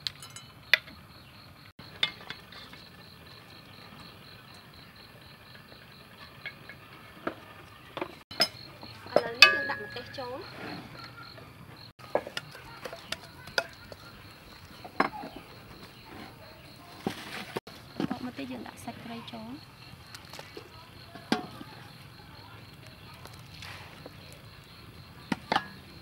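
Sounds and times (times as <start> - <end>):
pulsing insect trill: 0.0 - 26.0
wooden ladle knocking metal pot: 8.4 - 10.2, 12.0 - 15.4.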